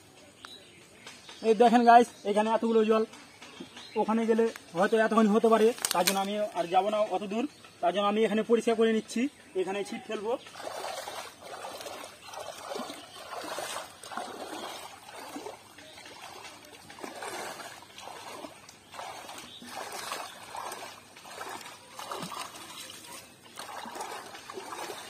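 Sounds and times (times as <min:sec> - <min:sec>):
hands splashing pond water: 0:05.2 - 0:06.7, 0:10.3 - 0:25.0
water trickling: 0:10.2 - 0:25.0.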